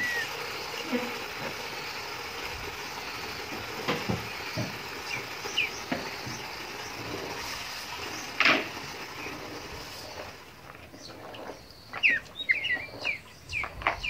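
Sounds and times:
tap water running into tub: 0:00.0 - 0:10.5.

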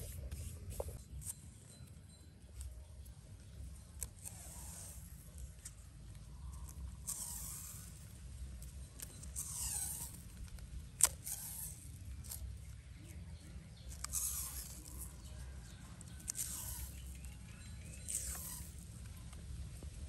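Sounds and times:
plastic tape pulled off roll: 0:03.8 - 0:13.1, 0:13.7 - 0:19.4.

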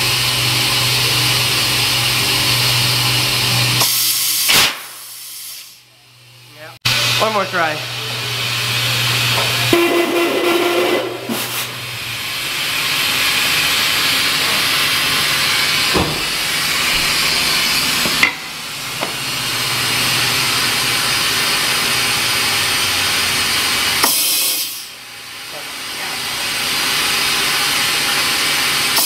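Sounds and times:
compressed air hissing: 0:03.8 - 0:05.9, 0:09.3 - 0:11.9, 0:24.0 - 0:25.0.

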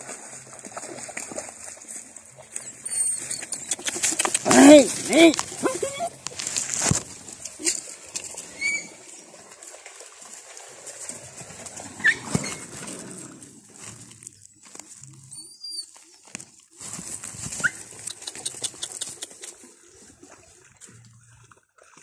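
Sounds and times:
high-pitched animal calls: 0:08.5 - 0:09.0.

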